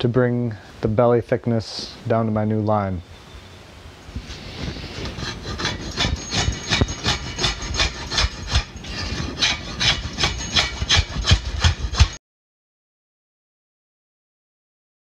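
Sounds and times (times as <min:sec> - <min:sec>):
drawknife scraping wood: 0:04.3 - 0:12.2.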